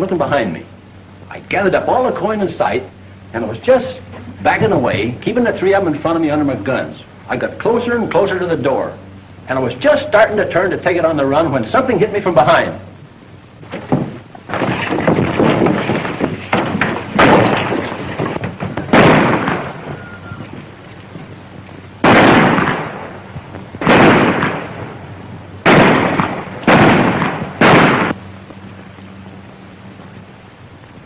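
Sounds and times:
sharp gunshots: 13.8s - 20.0s, 22.0s - 28.2s.

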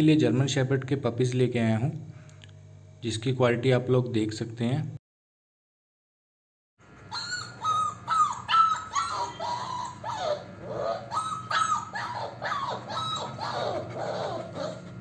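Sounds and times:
puppies whining and yelping: 7.1s - 15.0s.

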